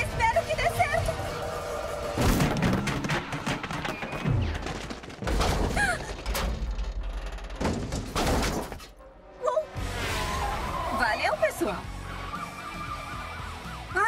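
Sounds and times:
heavy thuds and crashes: 2.2 - 9.0.

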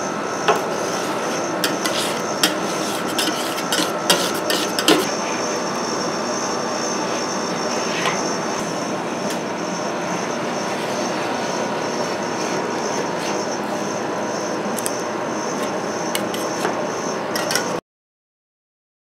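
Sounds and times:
refrigeration unit whirring: 0.0 - 17.8
spatulas scraping steel pan: 0.8 - 5.1.

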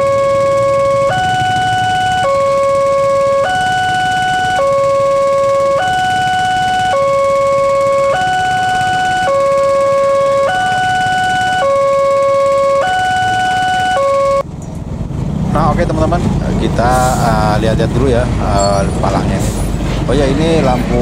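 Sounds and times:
two-tone level crossing alarm: 0.0 - 14.5.

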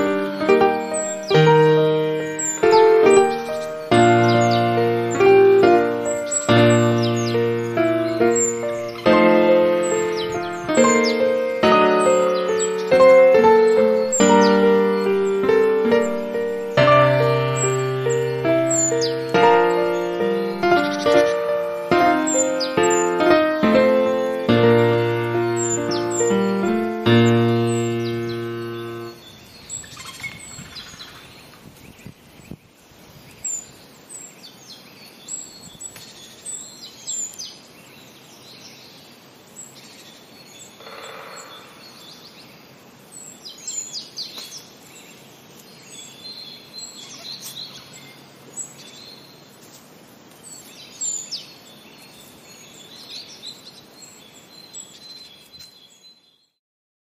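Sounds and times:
birds chirping and whistling: 0.0 - 32.1, 45.8 - 49.4
outdoor background hiss: 0.0 - 56.6.

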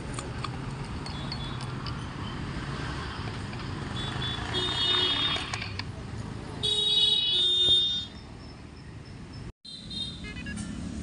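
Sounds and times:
street traffic: 0.0 - 11.0
vehicle horns honking: 3.9 - 5.6, 6.6 - 8.2, 9.7 - 11.0.

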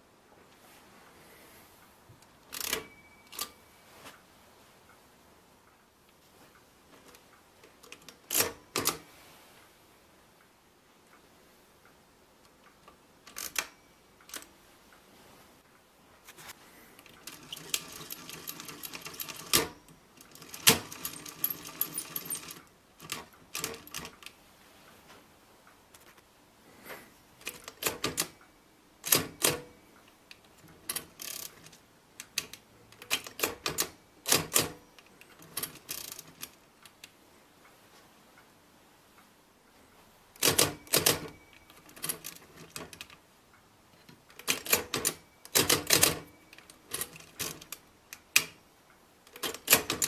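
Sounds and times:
ratcheting clatter of mechanism: 2.5 - 3.5, 13.2 - 13.7, 17.0 - 24.3, 30.9 - 36.6, 49.3 - 50.0
mechanical calculator clacks: 17.0 - 24.3, 27.4 - 28.4, 29.0 - 29.8, 30.5 - 36.6, 40.4 - 43.2, 44.4 - 48.5, 49.3 - 50.0.

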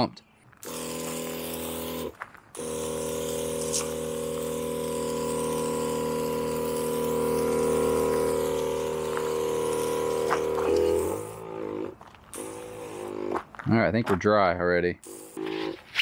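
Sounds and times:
electric sprayer pump humming: 0.6 - 13.6, 15.0 - 16.0
water spraying: 3.0 - 13.3.

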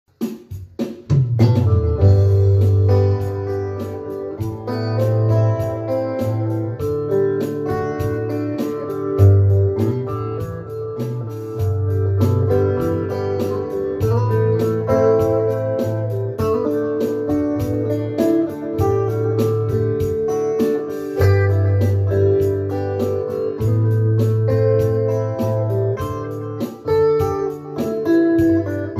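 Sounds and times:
light ticking beat: 0.1 - 28.9
electric guitar: 1.1 - 28.9
low bass line: 1.4 - 3.8.

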